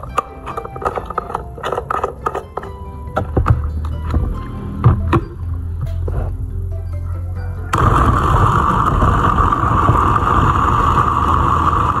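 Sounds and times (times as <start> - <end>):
blender motor grinding: 7.8 - 12.0.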